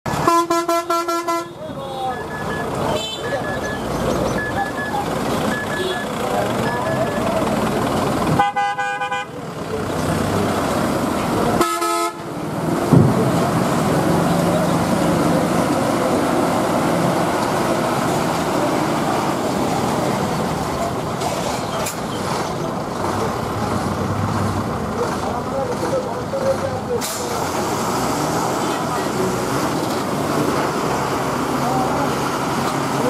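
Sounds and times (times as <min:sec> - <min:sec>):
truck engines running: 0:00.0 - 0:33.0
truck horn honking: 0:00.1 - 0:07.4, 0:08.2 - 0:09.6, 0:11.5 - 0:12.5
thump: 0:12.9 - 0:13.4.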